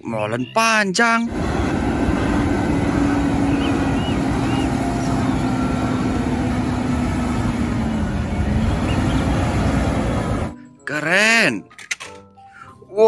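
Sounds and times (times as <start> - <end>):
truck diesel engine passing: 1.2 - 10.6.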